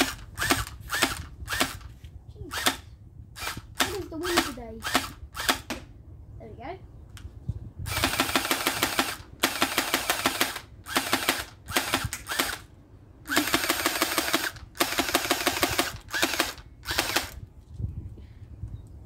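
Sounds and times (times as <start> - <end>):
airsoft rifle firing bursts: 7.9 - 12.6, 13.3 - 17.4.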